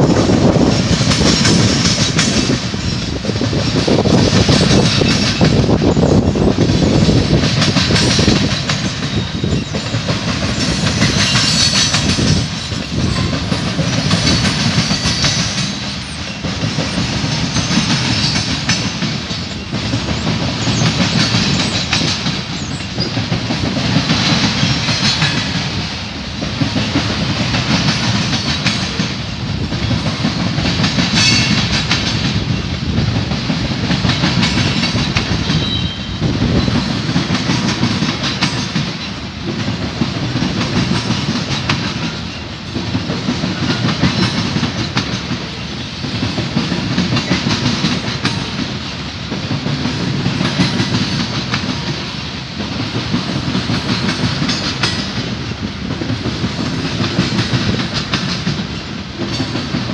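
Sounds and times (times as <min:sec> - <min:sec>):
train wheels rumbling on rail: 0:00.0 - 0:59.9
wheels clicking over rail joints: 0:00.1 - 0:59.9.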